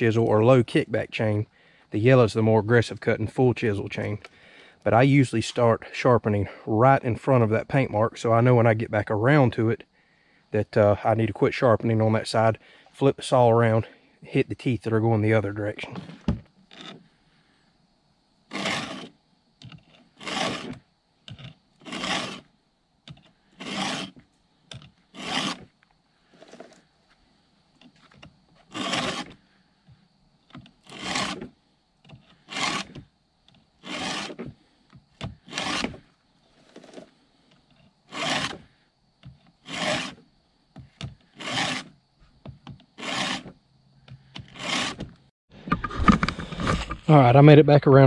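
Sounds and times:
file rasping on chain: 0:18.5 - 0:19.1, 0:20.2 - 0:20.8, 0:21.8 - 0:22.4, 0:23.6 - 0:24.2, 0:25.1 - 0:25.7, 0:28.7 - 0:29.4, 0:30.8 - 0:31.5, 0:32.4 - 0:33.0, 0:33.8 - 0:34.5, 0:35.4 - 0:36.0, 0:38.1 - 0:38.7, 0:39.6 - 0:40.2, 0:41.3 - 0:41.9, 0:43.0 - 0:43.5, 0:44.4 - 0:45.1.

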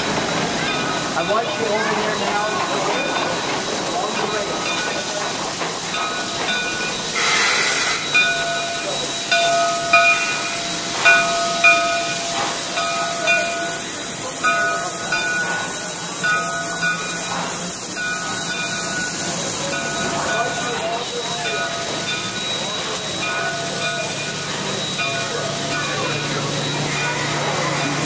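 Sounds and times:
rush of steam: 0:00.0 - 0:28.0
steam hissing: 0:00.0 - 0:28.0.

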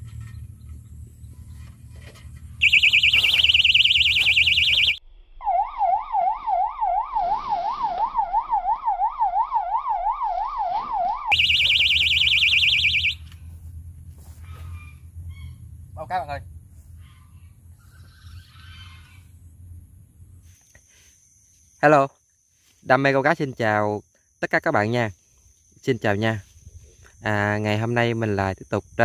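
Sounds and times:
electronic bite alarm warbling: 0:02.6 - 0:13.2.

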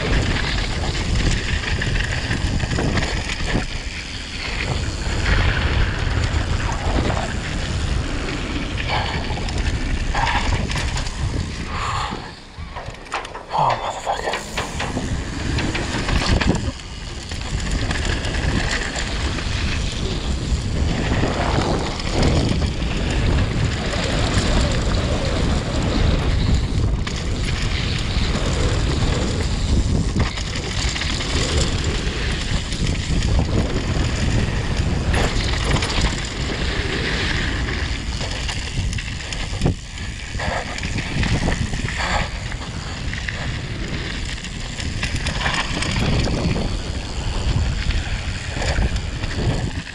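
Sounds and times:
wind rushing over microphone: 0:00.0 - 0:49.9
tyres rolling over gravel: 0:14.8 - 0:49.9.

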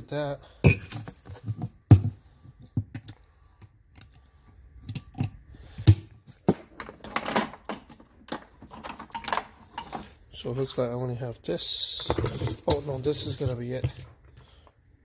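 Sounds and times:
metal tools clicking and clinking: 0:04.8 - 0:10.1.

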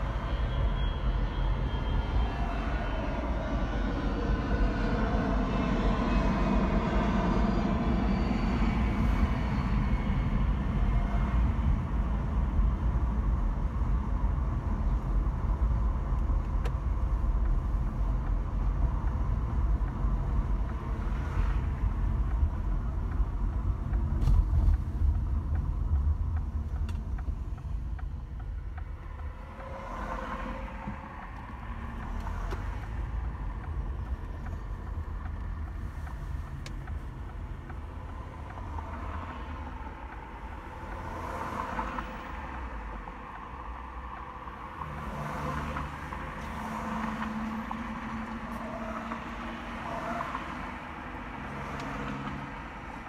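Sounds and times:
jet engine whine and rumble: 0:00.0 - 0:35.8.

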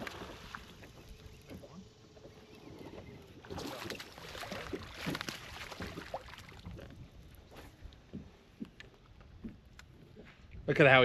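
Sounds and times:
water splashing: 0:00.0 - 0:07.1.

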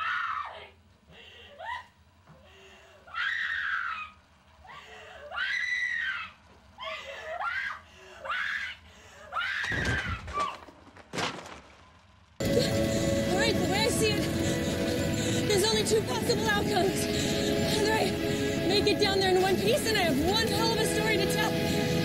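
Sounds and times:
woman screaming: 0:00.0 - 0:00.8, 0:03.1 - 0:10.6.

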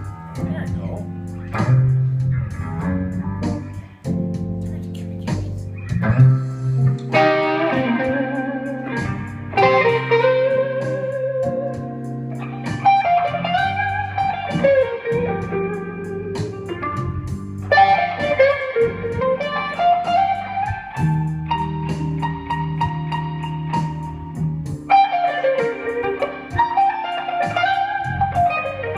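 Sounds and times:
electric guitar blues lead: 0:00.0 - 0:28.9.

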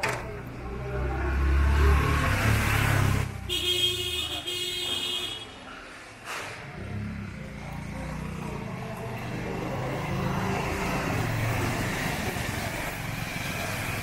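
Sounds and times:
vehicle engine passing: 0:00.2 - 0:03.5, 0:06.5 - 0:14.0.

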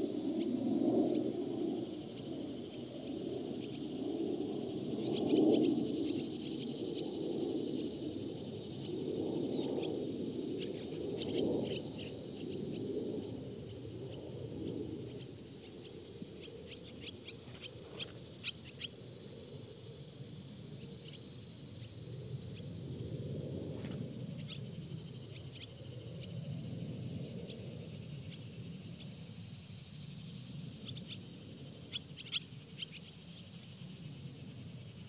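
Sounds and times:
swallows chirping: 0:10.6 - 0:19.6.

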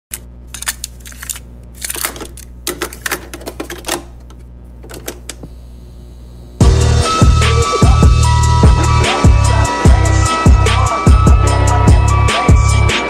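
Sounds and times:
low steady hum: 0:00.1 - 0:06.6.

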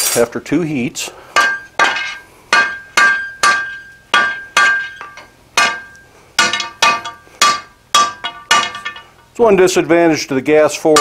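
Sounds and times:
hammer striking steel on anvil: 0:01.4 - 0:09.3.

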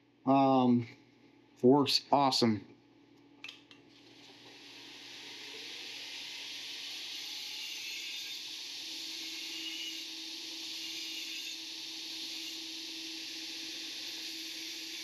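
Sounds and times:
belt sander grinding metal: 0:04.5 - 0:15.0.

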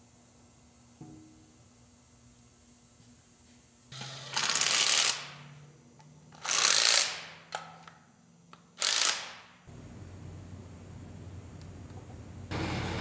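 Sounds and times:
impact wrench hammering: 0:08.8 - 0:09.6.

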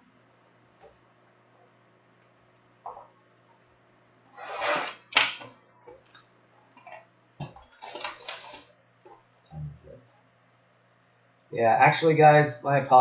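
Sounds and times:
cardboard boxes sliding: 0:04.4 - 0:05.1
plastic wrap rustling: 0:07.6 - 0:08.7.

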